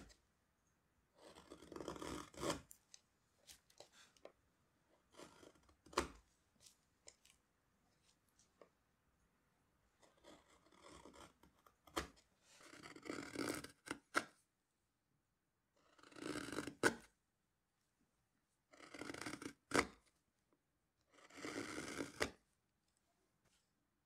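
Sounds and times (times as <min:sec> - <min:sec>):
gouge slicing wood: 0:01.2 - 0:02.8, 0:05.0 - 0:07.2, 0:10.1 - 0:14.3.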